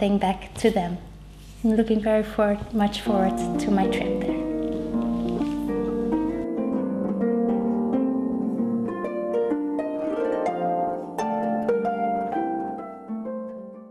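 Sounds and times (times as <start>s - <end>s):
solo harp music: 3.0s - 13.9s.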